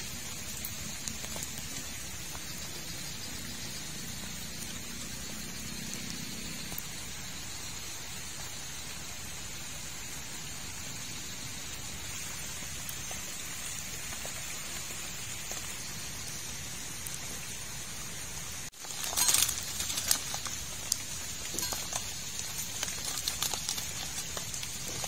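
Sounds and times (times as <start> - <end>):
rain falling on water: 0.0 - 25.0
plastic snack bag crackling: 18.7 - 25.0.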